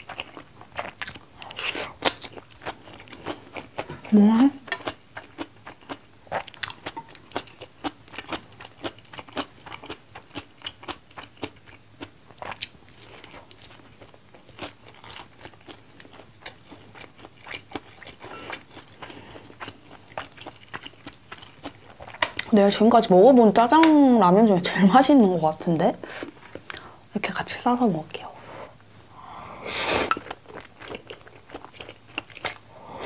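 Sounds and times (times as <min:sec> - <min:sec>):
chewing noodles: 0:00.0 - 0:22.6, 0:30.1 - 0:32.7.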